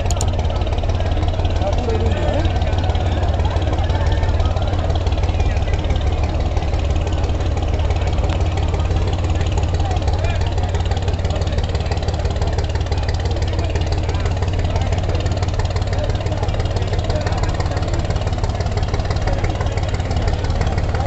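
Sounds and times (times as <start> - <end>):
boat diesel engines rumbling: 0.0 - 21.0.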